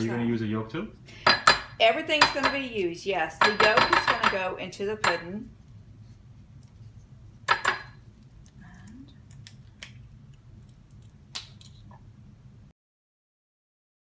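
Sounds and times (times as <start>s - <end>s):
eggshell tapping on ceramic dish: 1.2s - 2.7s, 3.4s - 5.3s, 7.5s - 8.0s.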